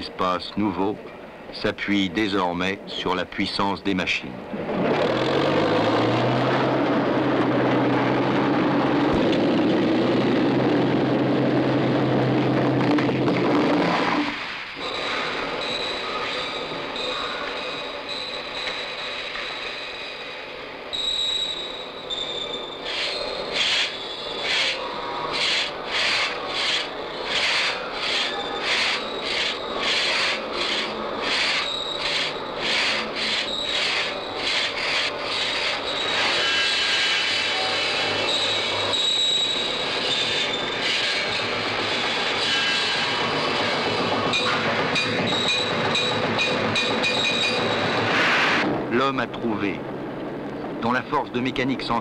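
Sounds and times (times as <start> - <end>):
hand saw cutting wood: 25.4 - 37.4.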